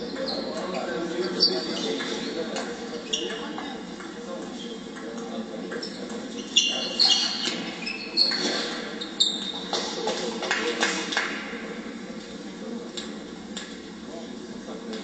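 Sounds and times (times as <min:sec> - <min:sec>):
sneaker squeaks: 0:00.0 - 0:03.8, 0:05.8 - 0:10.0.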